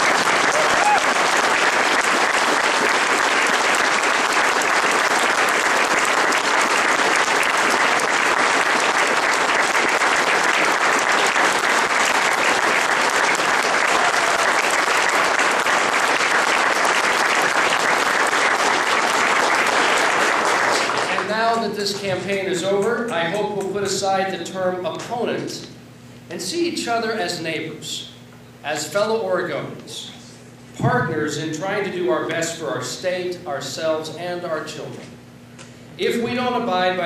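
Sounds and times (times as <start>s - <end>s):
crowd applauding: 0.0s - 21.3s.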